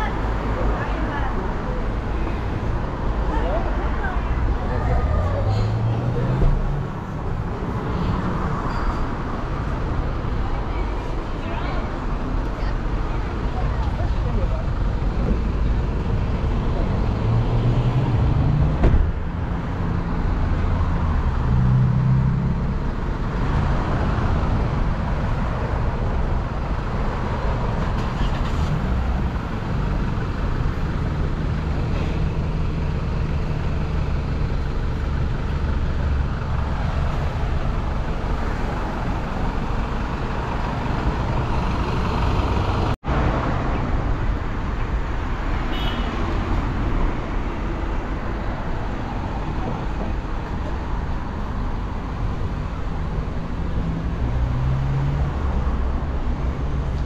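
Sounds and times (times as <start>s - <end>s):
traffic rumble: 0.0s - 57.0s
heavy engine passing close: 27.5s - 45.2s.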